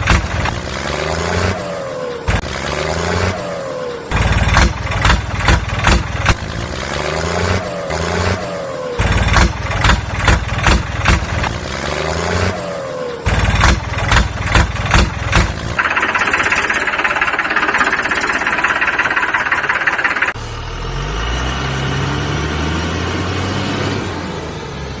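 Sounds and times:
heavy engine revving in knocking bursts: 4.1s - 8.4s, 9.0s - 12.5s, 13.3s - 20.4s
steady high whine: 15.8s - 20.4s.

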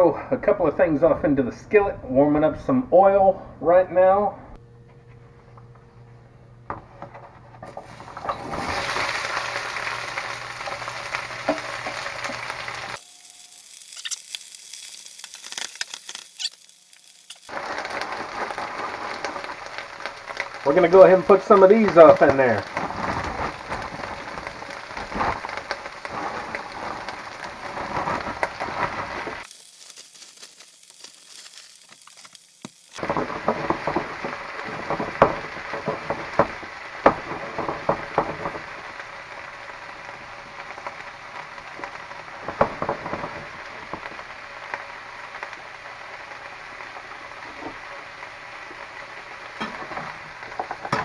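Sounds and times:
vegetables sizzling in hot oil: 7.7s - 51.0s.

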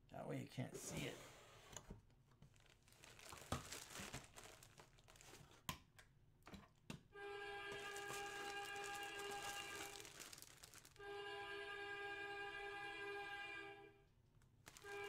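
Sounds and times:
plastic bag crinkling: 2.4s - 5.7s, 7.7s - 11.0s, 14.5s - 15.0s.

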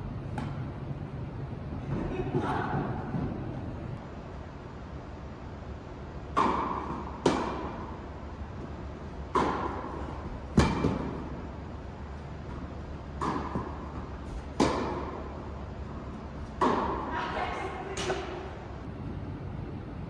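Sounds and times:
tennis ball bouncing on hard court: 6.3s - 8.0s, 9.1s - 11.4s, 12.4s - 15.4s, 16.1s - 17.1s
tennis ball hit by racket: 6.3s - 8.0s, 9.2s - 11.4s, 13.2s - 15.3s, 16.4s - 17.1s.

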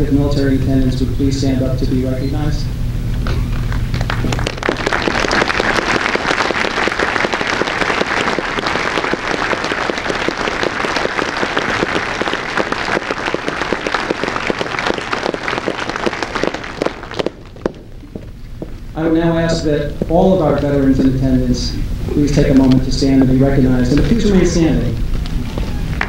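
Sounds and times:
audience applauding: 3.5s - 18.3s.

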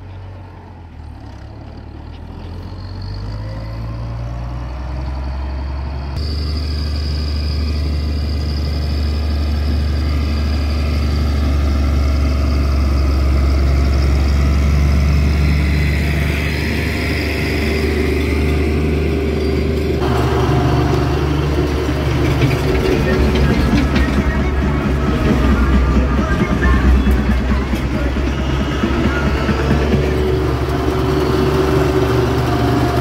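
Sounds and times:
tractor diesel engine droning: 0.0s - 33.0s
rattling noise: 20.0s - 31.2s.

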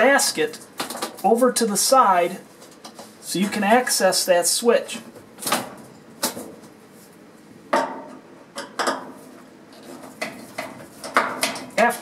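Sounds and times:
clicks and knocks of parts handled: 9.8s - 11.9s.

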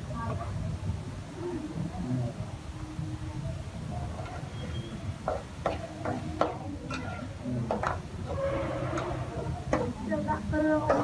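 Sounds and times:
metal spatula scraping wok: 8.2s - 9.7s.

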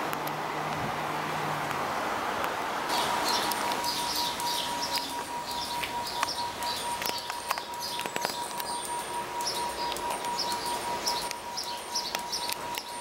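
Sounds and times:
steady high tone: 2.9s - 13.0s
sharp clicks: 3.3s - 13.0s.

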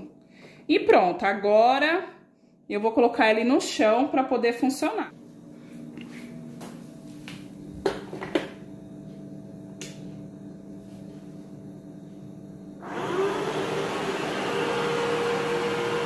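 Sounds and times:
low steady hum: 0.0s - 12.8s
robot vacuum suction fan whine: 12.8s - 16.0s.

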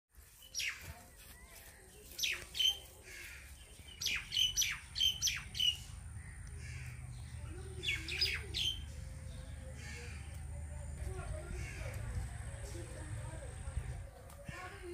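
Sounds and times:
birds squawking: 2.2s - 13.0s.

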